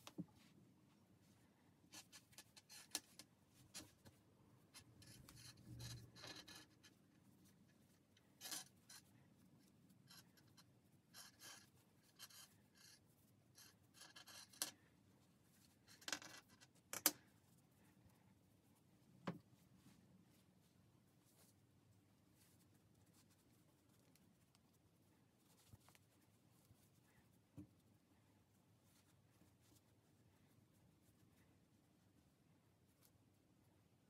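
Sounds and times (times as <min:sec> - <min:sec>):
hands rustling toy stuffing: 0:17.2 - 0:33.4.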